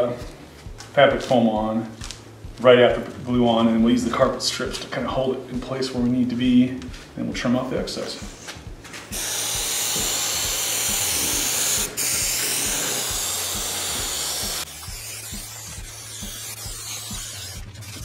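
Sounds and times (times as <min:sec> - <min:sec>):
aerosol spray hissing: 0:09.1 - 0:18.0.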